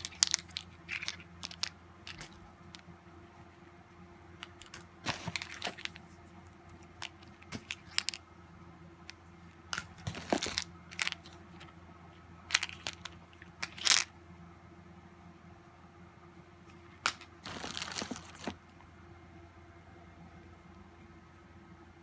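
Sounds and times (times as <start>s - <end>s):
plastic packaging crinkling: 0.0s - 2.4s, 4.5s - 6.2s, 6.8s - 8.2s, 9.6s - 11.7s, 12.5s - 14.1s, 17.0s - 18.6s.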